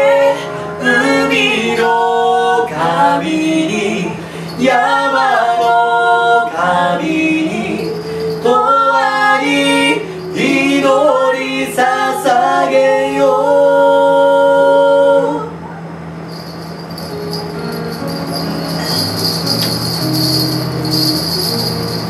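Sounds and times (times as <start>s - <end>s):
woman singing: 0.0s - 15.6s
light jingling: 7.8s - 8.7s, 16.3s - 22.0s.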